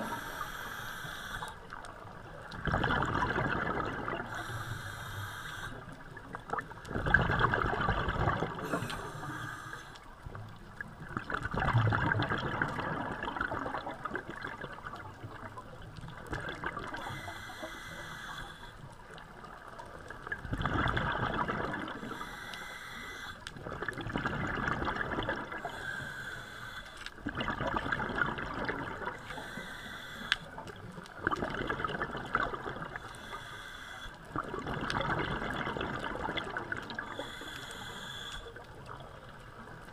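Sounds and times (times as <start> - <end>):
bubbling gurgle of exhale: 0.0 - 0.6, 1.3 - 9.8, 10.7 - 39.9
regulator inhale hiss: 0.0 - 1.8, 4.2 - 6.0, 8.6 - 10.1, 17.0 - 18.9, 22.0 - 23.5, 25.6 - 27.2, 29.1 - 30.6, 32.9 - 34.2, 37.0 - 38.6.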